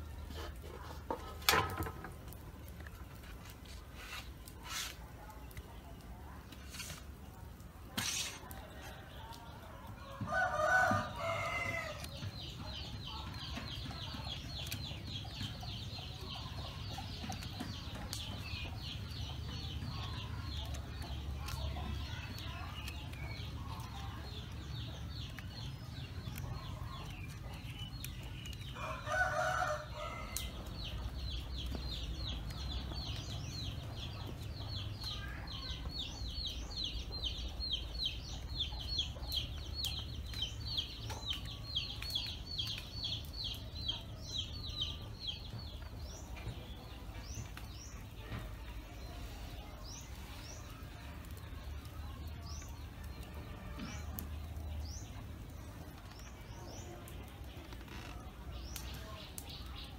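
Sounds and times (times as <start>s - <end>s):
rooster crowing: 28.8s - 30.4s.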